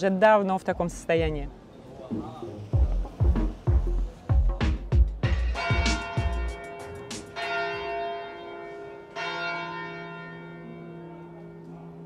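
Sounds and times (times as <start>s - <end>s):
music with heavy beat: 2.1s - 7.4s
church bell ringing: 5.5s - 12.0s.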